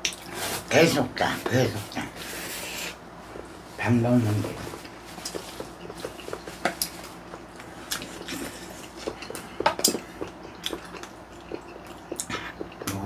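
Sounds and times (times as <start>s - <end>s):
chewing: 4.4s - 13.0s.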